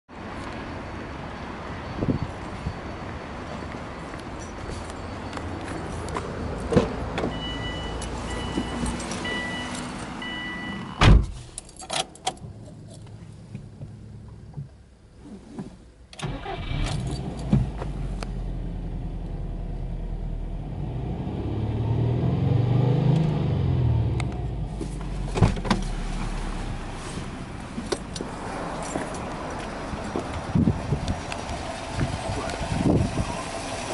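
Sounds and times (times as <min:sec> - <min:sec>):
car engine starting and idling: 0:07.1 - 0:33.9
two-tone warning chime: 0:07.4 - 0:11.0
loud thump: 0:11.0 - 0:11.4.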